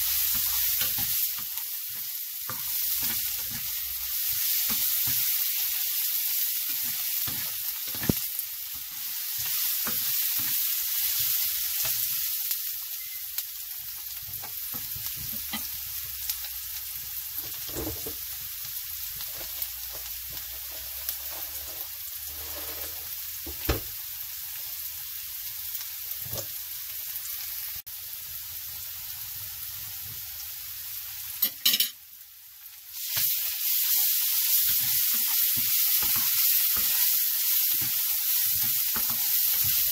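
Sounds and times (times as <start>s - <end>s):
onions sizzling in hot oil: 0.0s - 39.9s
spatula scraping and clicking on pan: 34.6s - 39.9s.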